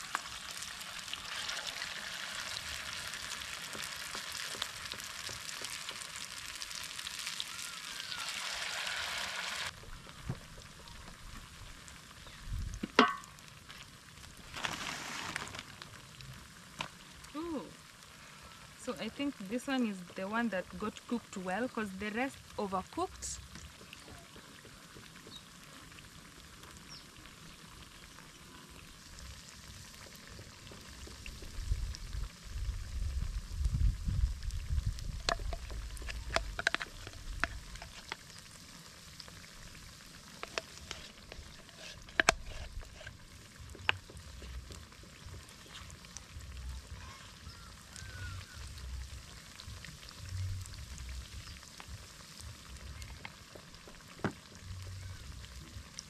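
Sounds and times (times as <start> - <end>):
potatoes sizzling in hot oil: 0.0 - 56.0
low rumble: 31.3 - 36.6, 48.2 - 53.1.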